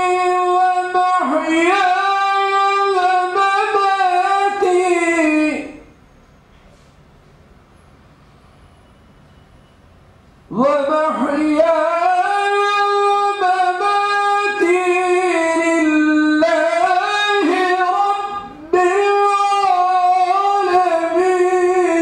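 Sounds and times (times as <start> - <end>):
man chanting through a microphone: 0.0 - 5.9, 10.5 - 22.0.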